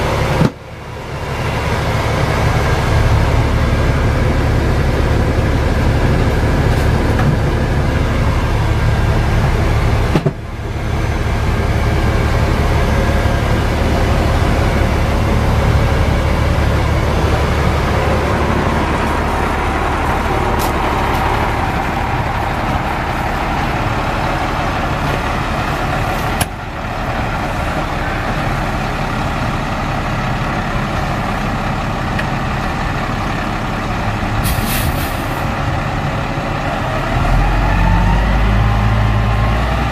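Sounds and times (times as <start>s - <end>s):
diesel engine idling: 0.0s - 39.9s.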